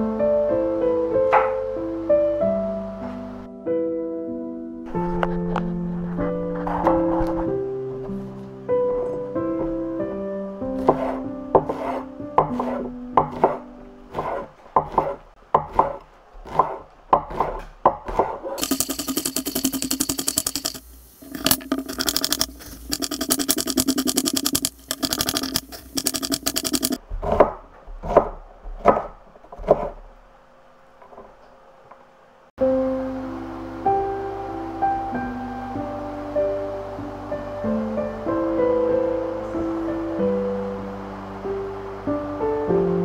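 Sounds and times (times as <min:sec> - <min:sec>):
soft background music: 0:00.0 - 0:14.5, 0:32.6 - 0:43.0
zucchini grating on grater: 0:10.8 - 0:29.0.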